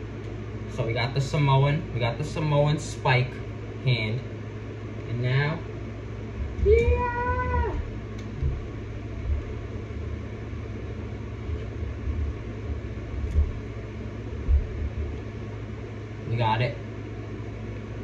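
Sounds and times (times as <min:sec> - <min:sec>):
low rumbling hum: 0:00.0 - 0:18.0
soft low bumps: 0:06.3 - 0:15.8
person shouting yeah: 0:06.6 - 0:07.9.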